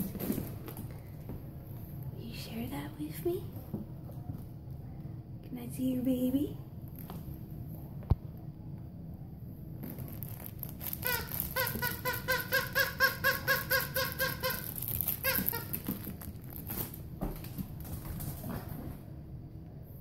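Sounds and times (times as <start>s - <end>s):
dog toy squeaking: 11.0s - 16.1s.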